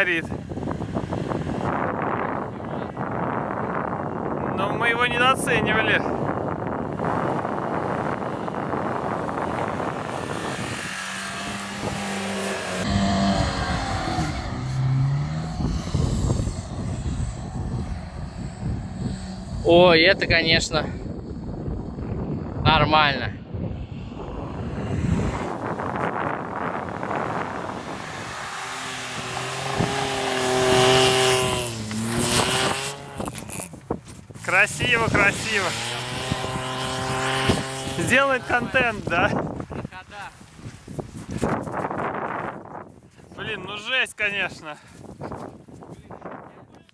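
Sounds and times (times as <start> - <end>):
wheels spinning in snow: 6.4 - 20.0, 23.8 - 39.8
car engine revving: 6.8 - 20.7, 23.5 - 33.8, 34.4 - 39.2.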